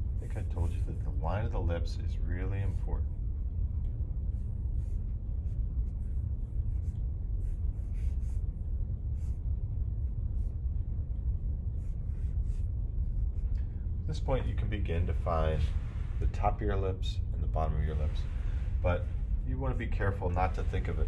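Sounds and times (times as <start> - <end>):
low rumble: 0.0 - 21.0
charcoal scratching on paper: 4.8 - 8.5.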